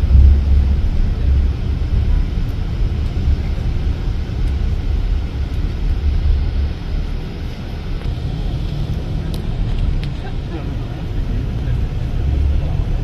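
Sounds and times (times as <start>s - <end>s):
coach engine and road noise: 0.0s - 13.0s.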